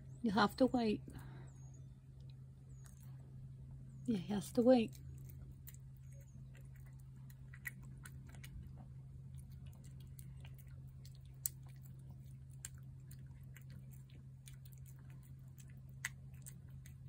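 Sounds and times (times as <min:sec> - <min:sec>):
steady low hum: 0:00.0 - 0:17.0
cat chewing wet food: 0:04.9 - 0:17.0.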